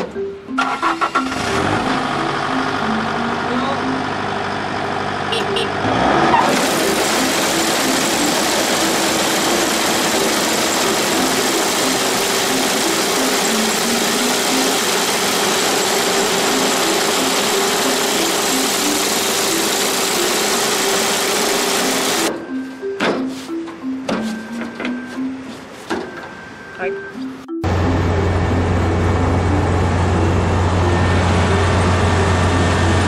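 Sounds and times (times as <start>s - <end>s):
combine harvester engine running: 0.1s - 22.4s, 27.6s - 33.0s
machinery rushing clatter: 6.5s - 22.3s.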